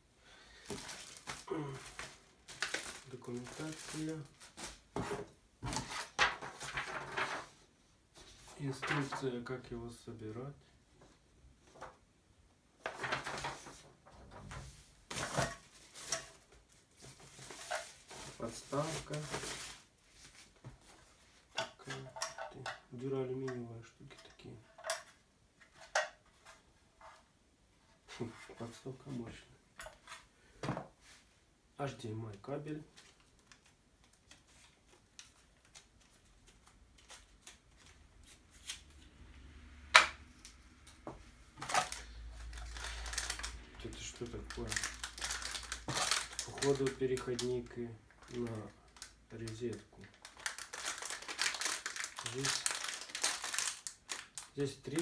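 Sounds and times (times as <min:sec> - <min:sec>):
packaging rustling and crackling: 0:00.5 - 0:05.0, 0:05.6 - 0:07.5, 0:12.8 - 0:20.6, 0:41.6 - 0:55.0.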